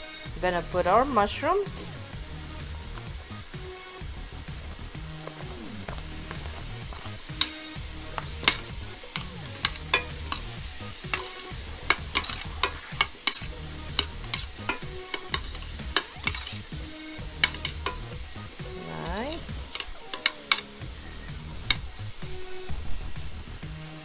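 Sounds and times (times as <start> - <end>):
light sizzle in a pan: 0.1 - 24.0
utensil scraping a pan: 5.0 - 22.0.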